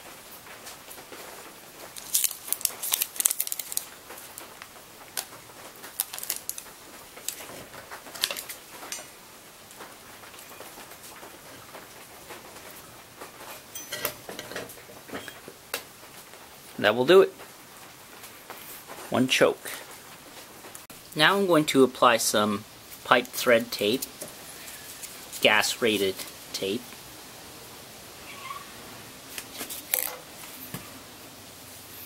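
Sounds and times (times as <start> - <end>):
foil tape crinkling: 0.6 - 9.1, 22.9 - 26.4, 29.3 - 30.7.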